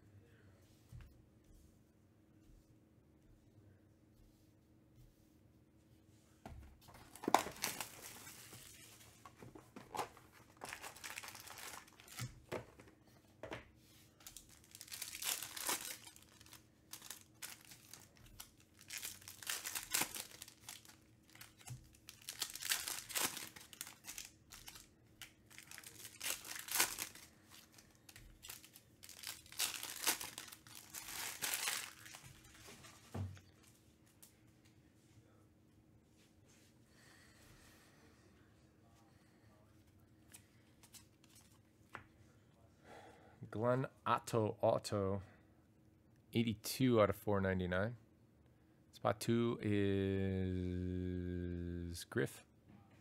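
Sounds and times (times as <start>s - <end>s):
foil wrappers tearing and crinkling: 7.1s - 9.0s, 9.8s - 12.4s, 14.2s - 32.6s.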